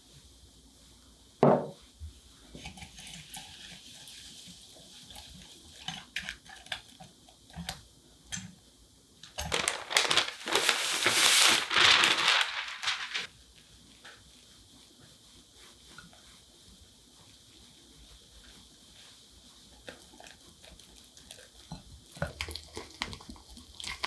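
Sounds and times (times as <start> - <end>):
flour sliding off paper: 9.4 - 19.4.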